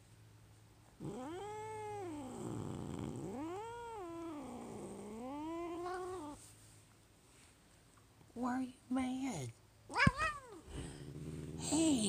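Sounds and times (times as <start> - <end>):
cat yowling: 9.9 - 10.6.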